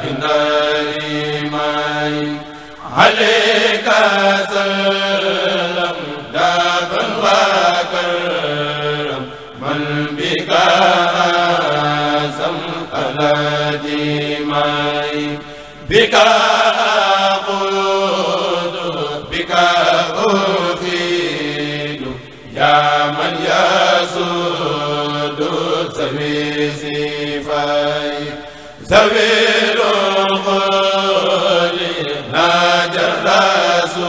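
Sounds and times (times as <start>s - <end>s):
men chanting unaccompanied: 0.0s - 34.0s.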